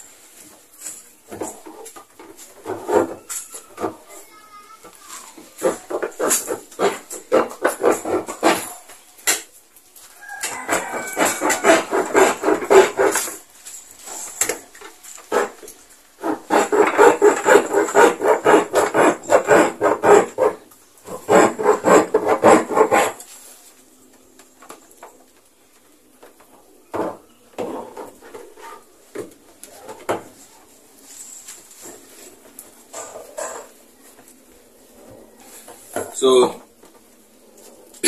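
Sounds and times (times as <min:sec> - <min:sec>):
blade sawing through plastic: 0:02.6 - 0:03.2, 0:05.6 - 0:08.8, 0:10.5 - 0:13.4, 0:15.3 - 0:23.3.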